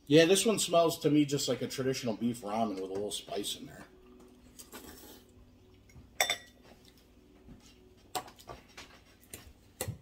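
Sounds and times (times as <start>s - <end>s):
forks clinking on ceramic bowls: 6.2s - 6.6s.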